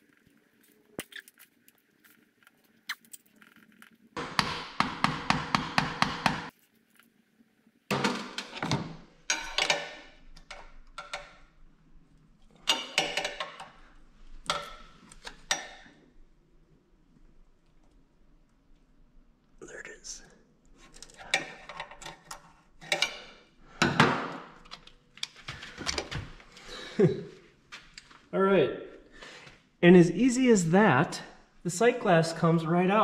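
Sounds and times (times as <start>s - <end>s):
metal tools scraping and rattling on metal: 9.3s - 11.4s, 12.6s - 13.8s, 20.8s - 23.4s.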